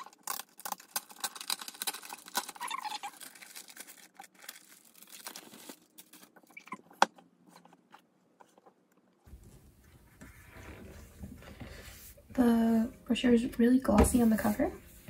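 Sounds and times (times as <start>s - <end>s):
plastic sleeve crinkling: 0.0s - 6.9s.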